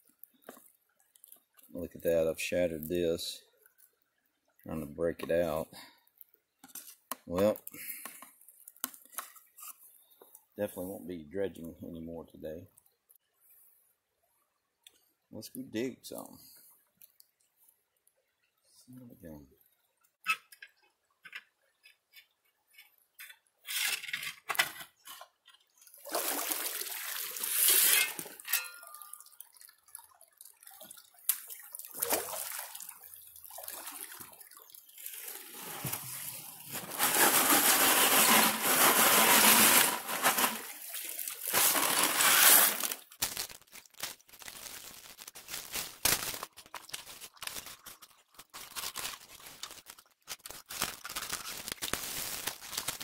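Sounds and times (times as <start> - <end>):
creek water splashing: 25.9 - 43.0
gravel clicks and scrapes: 35.4 - 40.8, 41.4 - 53.0.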